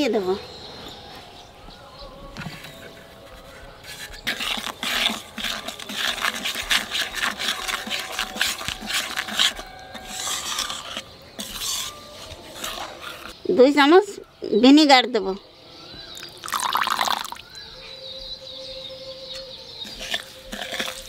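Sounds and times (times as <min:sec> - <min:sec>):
metal spatula scraping wok: 0:02.6 - 0:13.4, 0:19.8 - 0:21.0.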